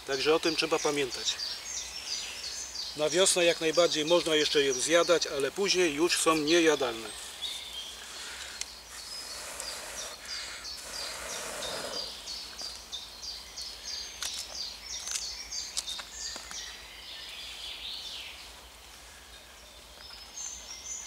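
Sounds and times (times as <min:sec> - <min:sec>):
breath blowing into fire: 0:08.0 - 0:12.3.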